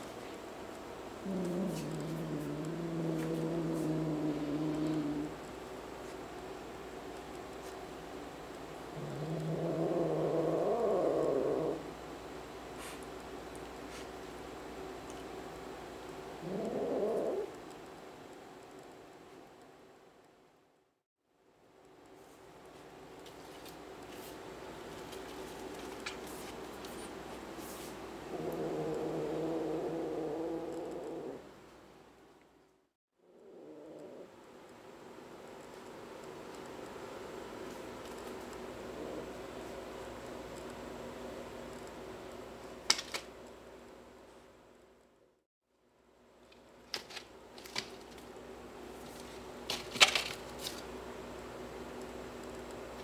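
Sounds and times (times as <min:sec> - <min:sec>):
steady low hum: 0:00.0 - 0:53.0
kitten growling: 0:01.2 - 0:05.4, 0:08.9 - 0:12.0, 0:16.4 - 0:17.6, 0:28.3 - 0:31.5, 0:33.2 - 0:34.4, 0:38.8 - 0:39.6.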